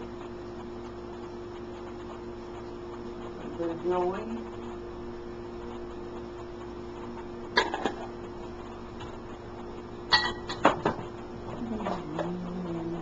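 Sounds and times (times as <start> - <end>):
steady hum: 0.0 - 13.0
cookware clinking: 10.1 - 10.6.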